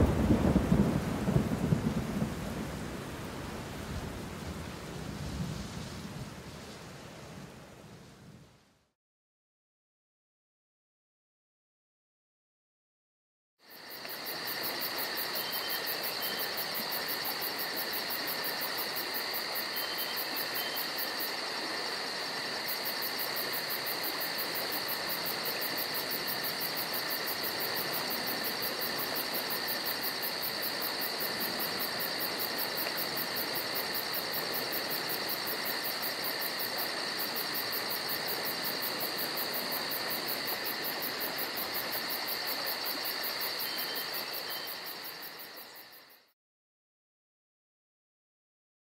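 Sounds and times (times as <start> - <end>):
insects chirping: 0.0 - 5.0, 13.6 - 46.3
constant hiss: 0.0 - 8.9, 13.7 - 46.2.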